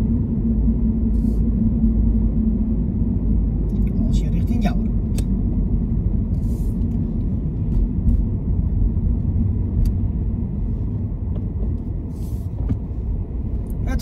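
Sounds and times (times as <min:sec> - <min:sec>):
car engine and tyres rumbling: 0:00.0 - 0:14.0.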